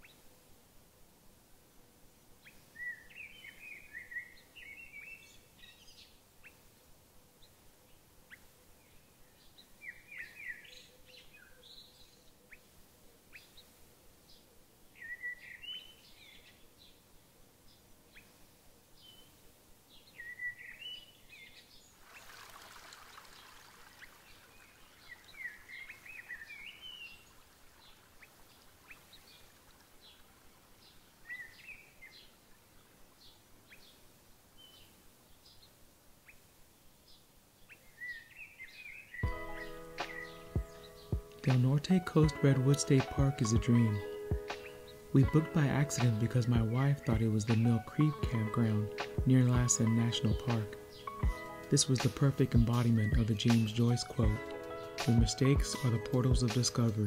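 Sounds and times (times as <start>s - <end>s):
songbird singing: 0.0s - 0.6s, 1.7s - 57.0s
faint background hiss: 0.0s - 57.0s
soft rush of noise: 21.6s - 37.7s.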